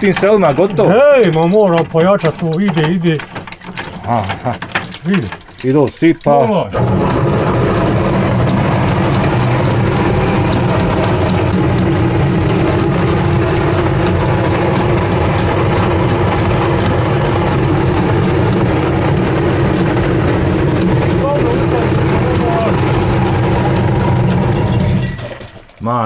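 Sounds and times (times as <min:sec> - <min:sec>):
grain mill humming and rumbling: 0:00.0 - 0:05.6, 0:06.7 - 0:25.6.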